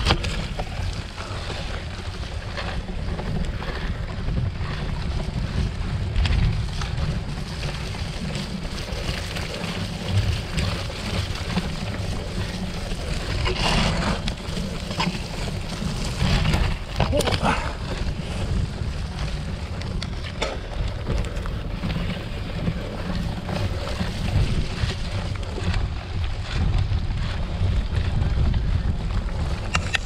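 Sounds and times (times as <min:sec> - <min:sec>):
bike rattling and knocking: 0:00.0 - 0:30.0
wind buffeting microphone: 0:00.0 - 0:30.0.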